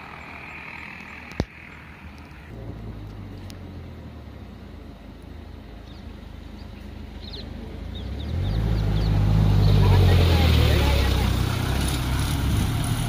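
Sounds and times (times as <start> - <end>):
vehicle engine running: 0.0 - 13.0
bird chirping: 5.8 - 11.1.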